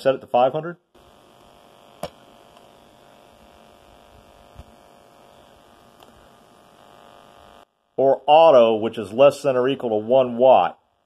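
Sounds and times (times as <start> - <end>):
electrical buzzing: 0.9 - 8.8.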